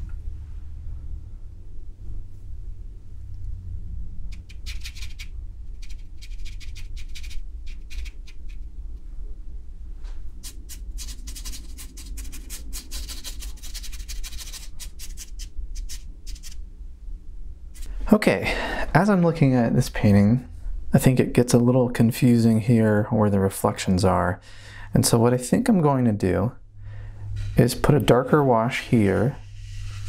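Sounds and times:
low steady hum: 0:00.0 - 0:30.0
paintbrush scratching on paper: 0:04.3 - 0:08.6, 0:10.4 - 0:16.6, 0:29.1 - 0:30.0.

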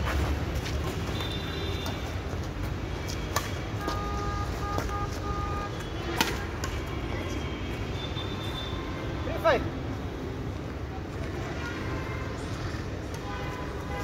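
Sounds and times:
racket striking shuttlecock: 0:06.2 - 0:06.8.

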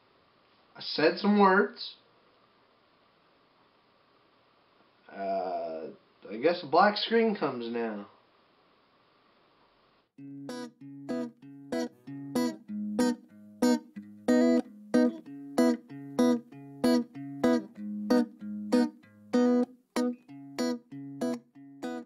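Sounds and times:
guitar strumming chords: 0:10.2 - 0:22.0.

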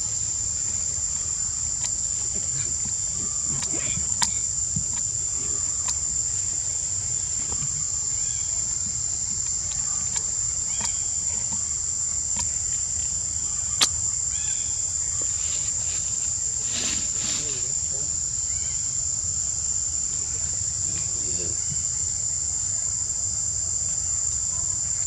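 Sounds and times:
forest insects droning: 0:00.0 - 0:25.0
faint chirps: 0:01.9 - 0:19.0.

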